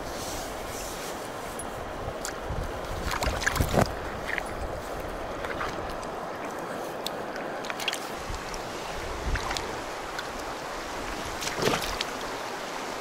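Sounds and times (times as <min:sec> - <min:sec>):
river water rushing over stones: 0:00.0 - 0:13.0
fish splashing: 0:11.3 - 0:12.3.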